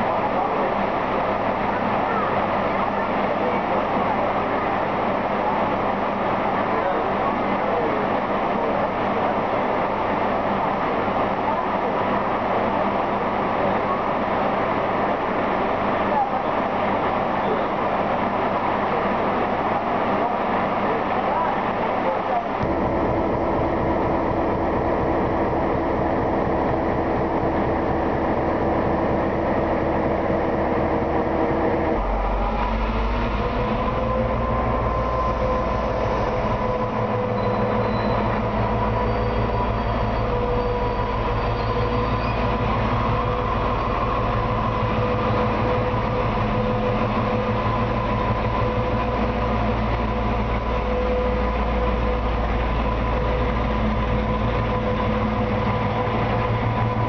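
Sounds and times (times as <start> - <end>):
diesel locomotive engine droning: 0.0 - 57.0
held rising tones: 22.6 - 50.8
deep rumble: 22.6 - 57.0.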